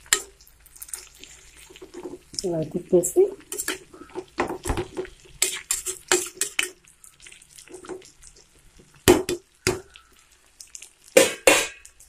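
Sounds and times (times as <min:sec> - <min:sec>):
metal spatula scraping a pan: 0:03.4 - 0:06.8
spatula knocking on pan: 0:09.0 - 0:09.9.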